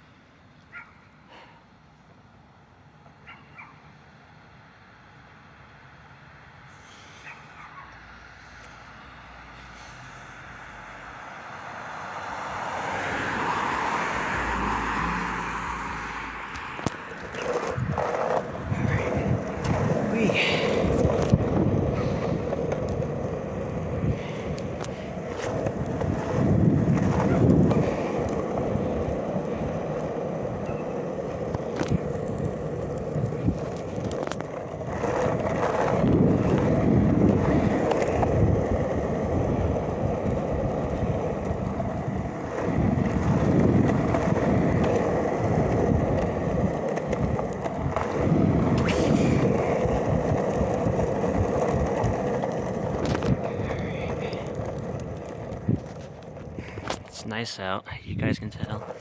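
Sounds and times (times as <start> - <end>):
longboard wheels rolling on concrete: 5.1 - 59.0
wheels clacking over cracks: 12.6 - 57.5, 58.3 - 59.0.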